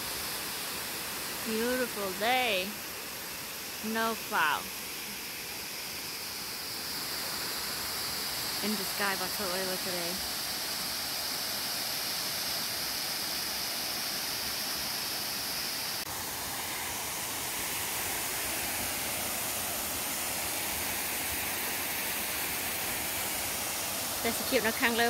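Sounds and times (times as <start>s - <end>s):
waterfall rushing: 6.4s - 25.0s.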